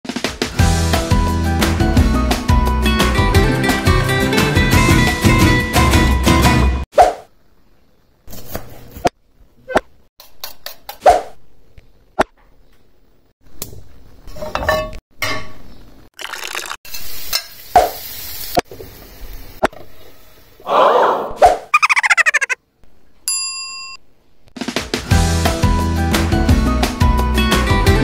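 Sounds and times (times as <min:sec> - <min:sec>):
food sizzling in pan: 0:16.5 - 0:19.6.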